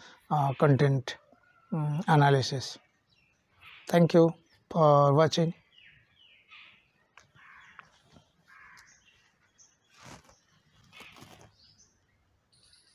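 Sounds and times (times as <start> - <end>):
faint crow caws: 3.6 - 4.0, 6.5 - 9.2.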